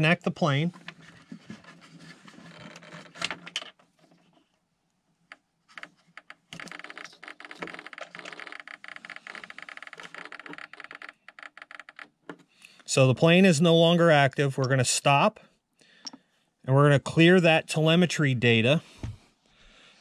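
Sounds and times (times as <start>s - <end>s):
small clicks and rattles: 0.8s - 4.6s, 5.2s - 12.5s.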